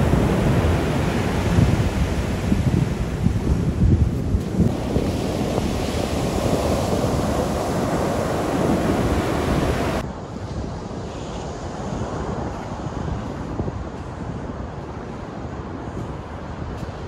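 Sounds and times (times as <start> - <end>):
ocean surf breaking: 0.0 - 10.1
wind rumbling on microphone: 0.0 - 17.0.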